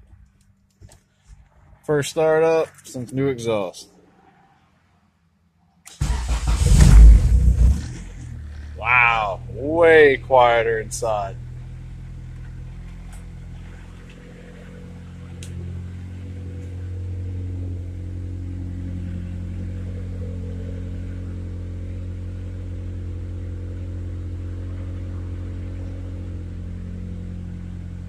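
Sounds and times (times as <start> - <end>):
car engine idling: 5.9 - 28.0.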